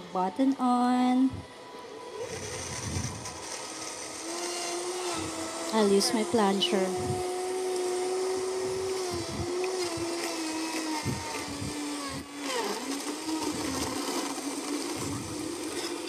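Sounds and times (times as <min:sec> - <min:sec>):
blender motor whining: 0:01.5 - 0:16.0.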